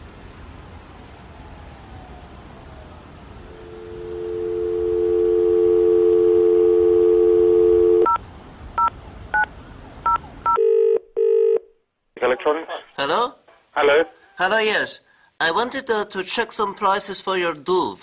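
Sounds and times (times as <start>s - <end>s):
telephone ringing tone: 3.5s - 8.2s, 10.5s - 11.6s
telephone dial tone: 3.6s - 8.2s.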